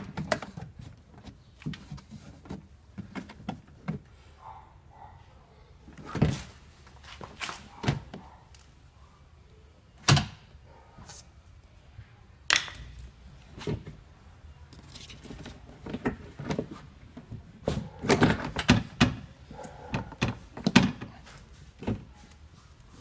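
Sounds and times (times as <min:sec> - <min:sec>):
plastic knocks clicks and rattles: 0:18.0 - 0:19.3, 0:19.9 - 0:21.1.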